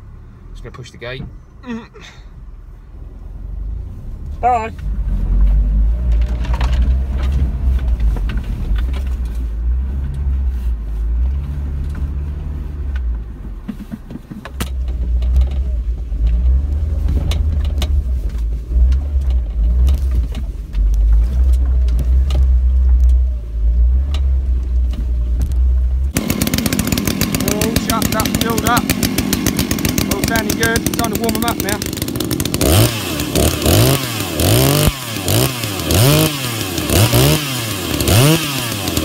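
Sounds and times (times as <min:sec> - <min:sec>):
off-road vehicle engine rumble: 0:00.0 - 0:39.0
knocks and rattles: 0:06.0 - 0:10.2, 0:11.2 - 0:23.3.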